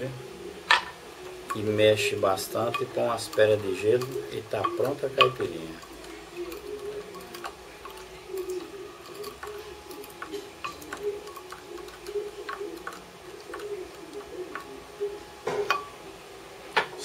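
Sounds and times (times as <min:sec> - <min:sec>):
muddler clicking in glass: 0:02.4 - 0:16.0.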